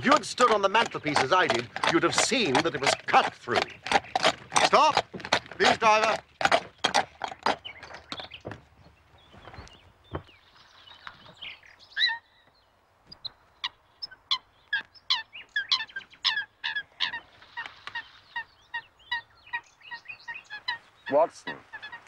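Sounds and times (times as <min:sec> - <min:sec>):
soft knocks of horse hooves: 0:00.0 - 0:11.6
waterfowl calling: 0:13.6 - 0:22.0.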